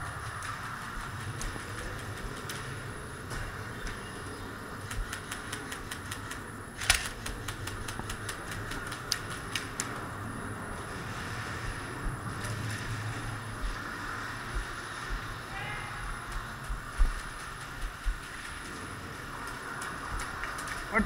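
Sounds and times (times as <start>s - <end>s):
airsoft gunfire clicks and cracks: 4.8s - 10.0s.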